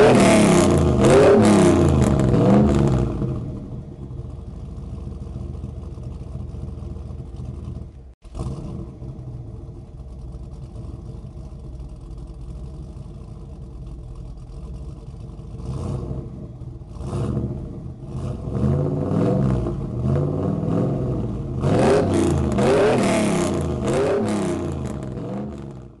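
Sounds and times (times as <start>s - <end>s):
car engine idling and revving: 0.0s - 26.0s.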